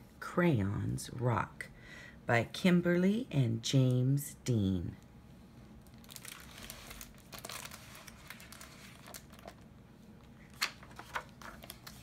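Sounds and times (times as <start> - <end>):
book pages turning: 6.0 - 12.0.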